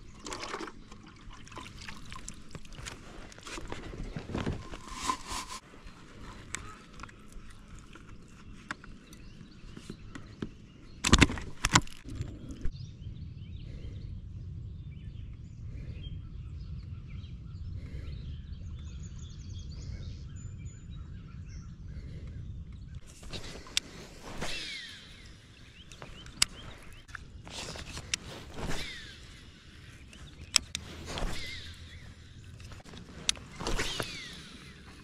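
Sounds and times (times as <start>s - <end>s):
steady low rumble: 12.0s - 35.0s.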